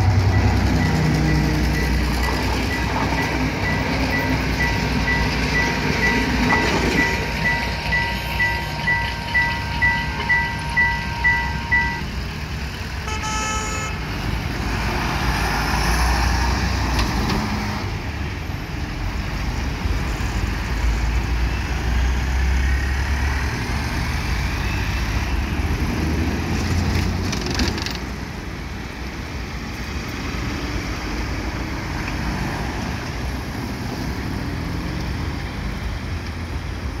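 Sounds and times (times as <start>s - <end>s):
crossing warning beeps: 0.0s - 12.3s, 13.0s - 14.1s, 24.4s - 25.8s
traffic engine and tyre noise: 0.0s - 37.0s
vehicle horn toot: 13.0s - 14.1s.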